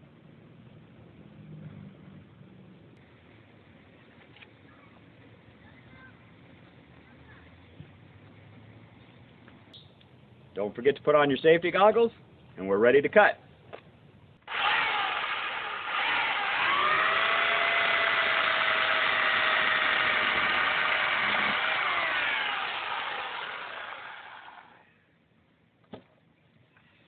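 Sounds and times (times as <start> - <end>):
electric chainsaw cutting wood: 14.5 - 24.8.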